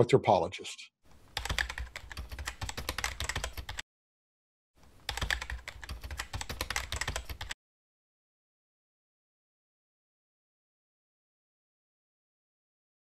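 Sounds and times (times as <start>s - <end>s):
keyboard typing clicks: 1.4s - 3.8s, 5.1s - 7.6s.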